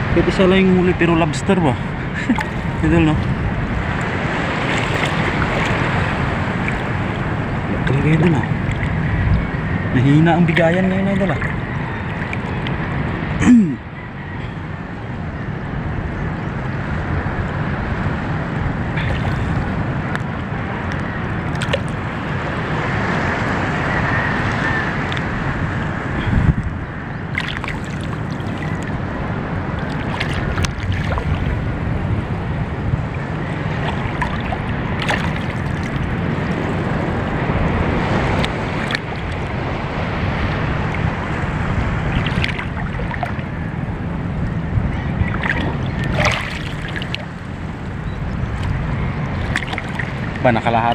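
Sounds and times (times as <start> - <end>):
wind on microphone: 0.0 - 50.9
sea water sloshing: 1.3 - 9.7, 10.4 - 13.2, 18.9 - 22.3, 26.1 - 50.9.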